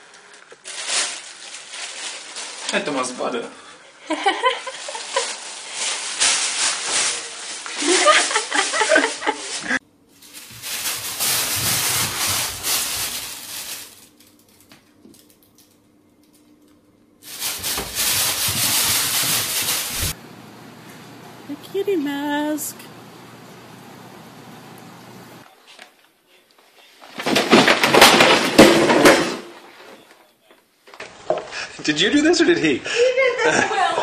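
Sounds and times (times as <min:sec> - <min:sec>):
plastic bags crinkling: 0:00.0 - 0:03.2, 0:04.4 - 0:14.7, 0:17.2 - 0:20.2.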